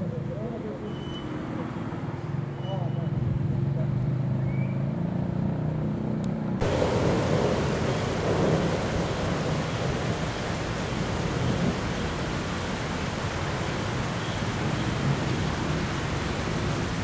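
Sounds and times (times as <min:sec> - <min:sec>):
heavy rain on concrete: 0:06.6 - 0:17.0.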